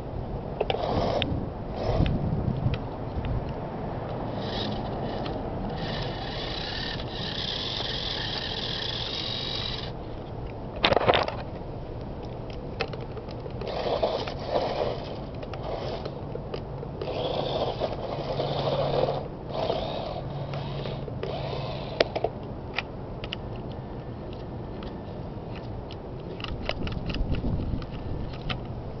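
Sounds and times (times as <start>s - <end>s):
small electric motors whining: 0.6s - 2.2s, 4.3s - 10.0s, 13.5s - 16.2s, 17.0s - 22.3s.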